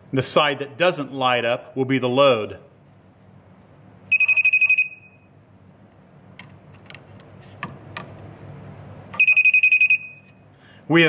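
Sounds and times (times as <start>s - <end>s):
voltage tester beeping: 4.1s - 5.3s, 9.2s - 10.4s.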